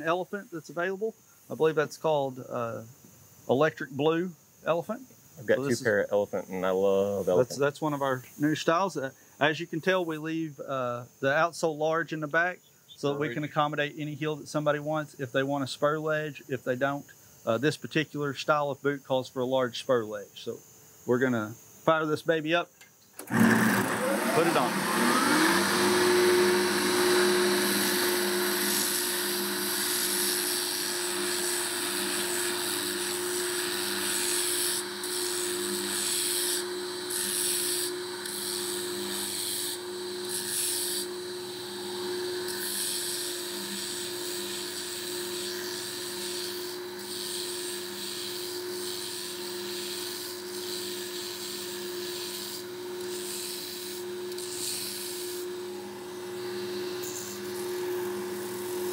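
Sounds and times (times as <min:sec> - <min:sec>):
motor hum: 0:23.2 - 0:33.8, 0:41.0 - 0:42.6, 0:55.1 - 0:58.9.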